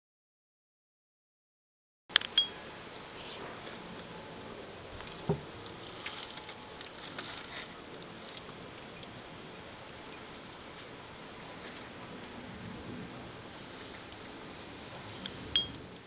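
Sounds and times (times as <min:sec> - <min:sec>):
wind rustling through trees: 0:02.1 - 0:16.0
camera beep: 0:15.6 - 0:15.8.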